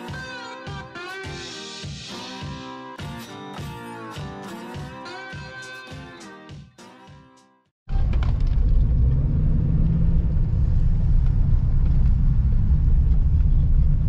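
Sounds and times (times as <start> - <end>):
engine and tyre rumble: 7.9 - 14.0.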